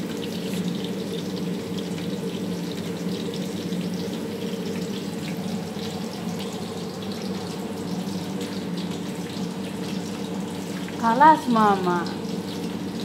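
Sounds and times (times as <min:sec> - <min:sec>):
vegetables deep-frying in oil: 0:00.0 - 0:13.0.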